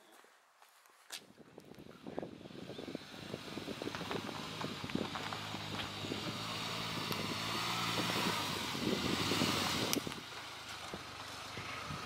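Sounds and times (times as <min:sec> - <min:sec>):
small car engine running: 0:02.2 - 0:12.0
tyres crackling over gravel: 0:03.8 - 0:07.4, 0:09.8 - 0:12.0.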